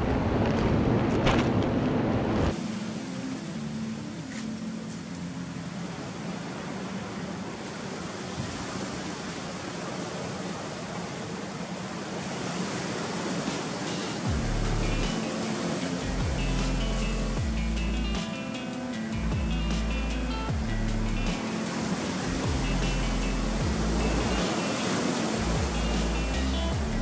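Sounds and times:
surf washing over rocks: 0.0 - 27.0
music with low bass: 14.3 - 24.7, 25.3 - 27.0.

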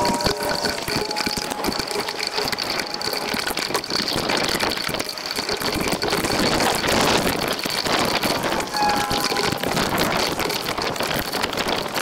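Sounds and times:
heavy rain on camera: 0.0 - 12.0
thin high tone: 8.7 - 10.3.

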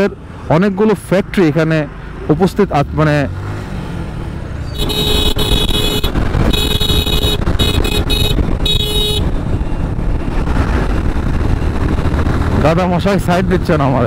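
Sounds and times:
motorcycle engine rumble: 3.9 - 14.0
vehicle horn honking: 4.7 - 9.4.

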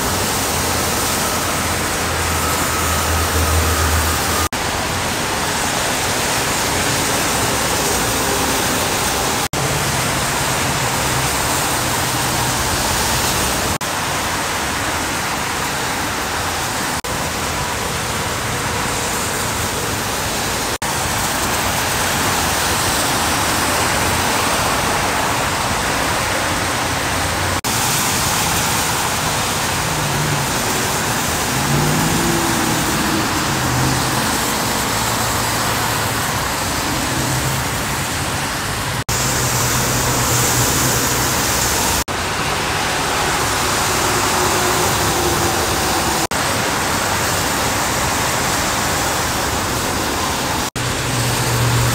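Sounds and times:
rain: 0.0 - 51.9
truck engines humming: 0.0 - 51.9
tyres hissing on wet road: 0.0 - 51.9
engine note rising and falling: 0.6 - 4.6, 29.5 - 42.1.

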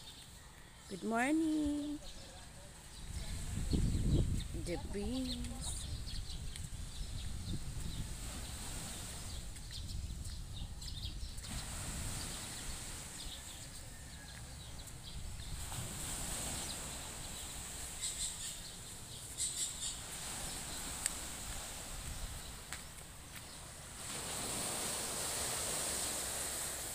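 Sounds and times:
birds chirping: 0.0 - 26.4
breeze rumble on microphone: 3.0 - 13.6.

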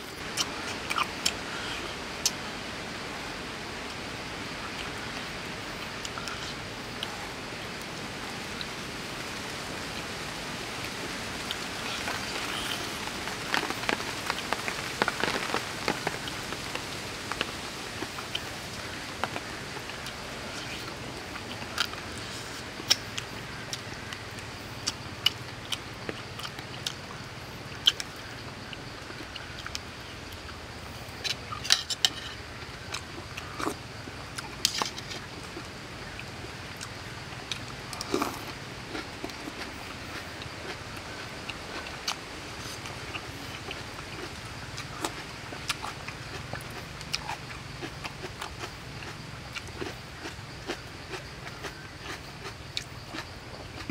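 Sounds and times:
background hiss: 0.0 - 53.9
person chewing: 0.3 - 2.4, 6.0 - 7.1, 11.4 - 16.6, 36.2 - 41.1, 41.7 - 53.9.

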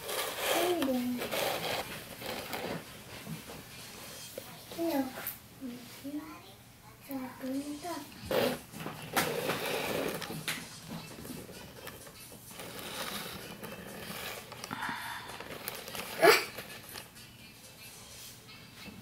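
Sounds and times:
plastic toy rustling on cardboard: 0.0 - 5.2, 7.5 - 17.2.

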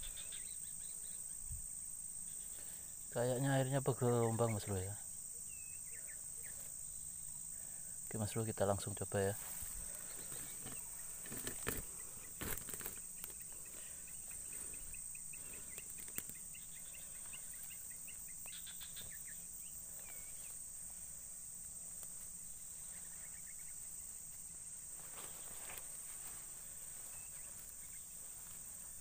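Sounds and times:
crickets chirring: 0.0 - 29.0
dry grass rustling: 9.1 - 29.0.

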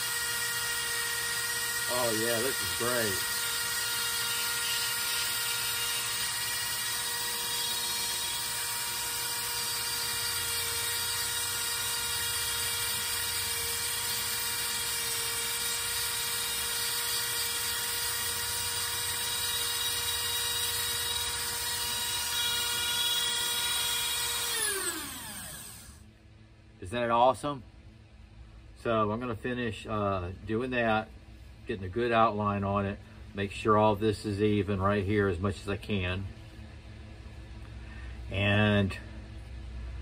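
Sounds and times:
rotary tool spinning down: 0.0 - 26.0
rotary tool high whine: 0.0 - 26.1.

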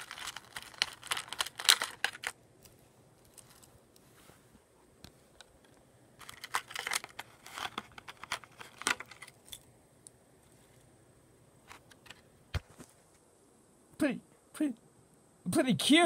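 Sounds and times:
plastic wrapping crinkling: 0.0 - 3.8, 6.2 - 9.6.

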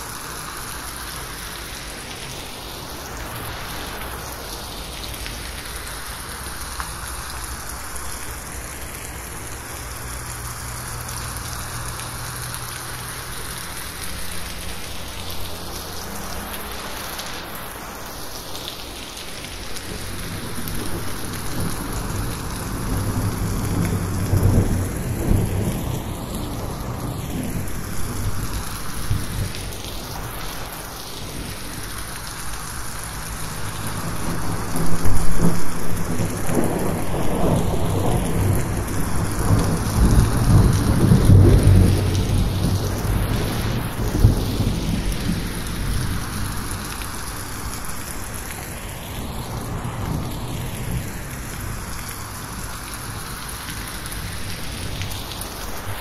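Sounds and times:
heavy rain on a roof: 0.0 - 56.0
rolling thunder: 19.8 - 30.8, 33.9 - 47.0.

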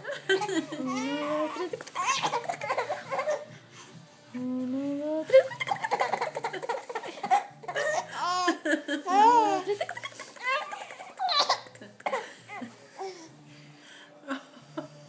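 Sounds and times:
baby laughing: 0.0 - 3.5, 5.4 - 12.2.

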